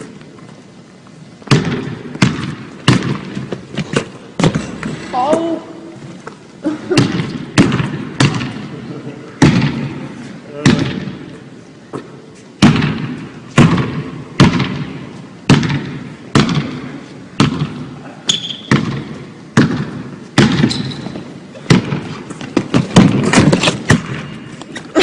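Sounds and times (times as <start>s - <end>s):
basketball bouncing on wooden floor: 1.5s - 4.9s, 7.0s - 8.6s, 17.4s - 17.8s, 18.6s - 24.2s
shoe squeak: 18.3s - 18.7s, 20.6s - 21.2s.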